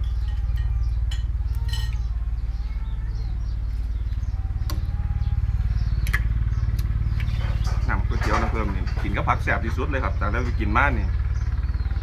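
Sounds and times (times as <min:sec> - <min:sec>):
utensils clinking on ceramic bowl: 0:00.0 - 0:02.0
engine idling rumble: 0:00.0 - 0:12.0.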